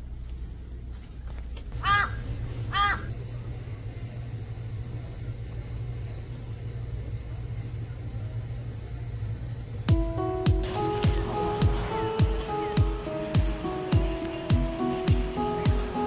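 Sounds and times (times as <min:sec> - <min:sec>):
steady low rumble: 0:00.0 - 0:16.0
crow cawing: 0:01.8 - 0:03.1.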